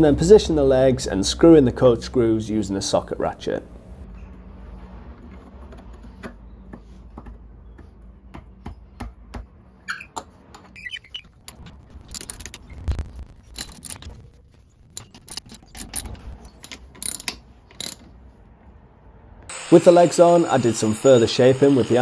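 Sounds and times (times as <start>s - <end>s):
socket ratchet clicking: 15.0s - 18.0s.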